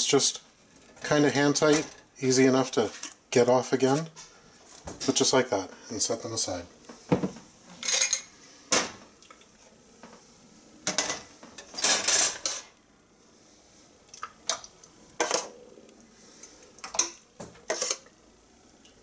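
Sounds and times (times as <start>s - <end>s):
metal ladle scraping steel pot: 17.6s - 18.1s.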